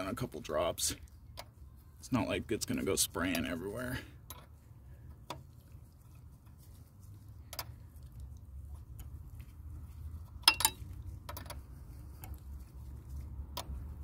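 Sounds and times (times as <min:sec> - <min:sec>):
wrench clinking on metal nut: 0:10.4 - 0:11.6.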